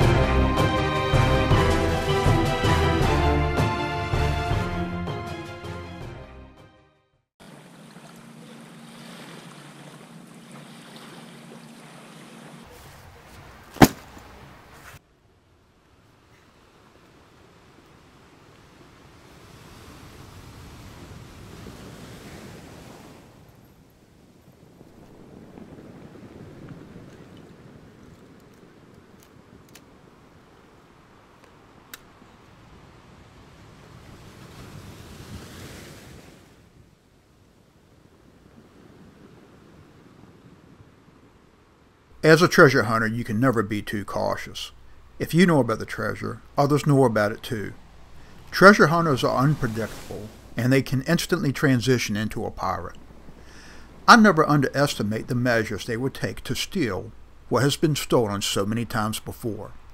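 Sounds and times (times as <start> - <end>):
water washing on shore: 7.4 - 15.0, 16.1 - 36.8, 42.2 - 59.9
sharp knock: 13.8 - 14.1
wind buffeting microphone: 18.7 - 42.2, 46.0 - 56.4.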